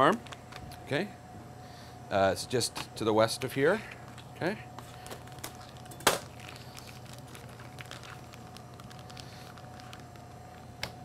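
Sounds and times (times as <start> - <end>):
faint steady hum: 0.0 - 11.0
plastic bag crinkling: 4.9 - 10.6.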